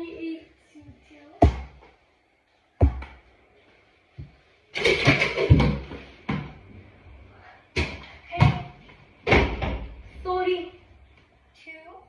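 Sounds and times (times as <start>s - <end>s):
ball bouncing on tile floor: 1.4s - 2.0s, 2.8s - 3.2s, 4.2s - 6.6s, 7.7s - 9.9s.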